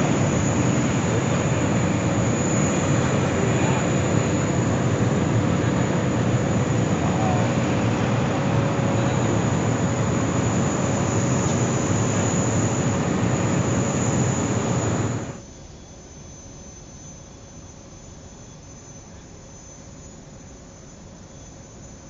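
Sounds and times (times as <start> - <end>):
jet engines roaring: 0.0 - 15.4.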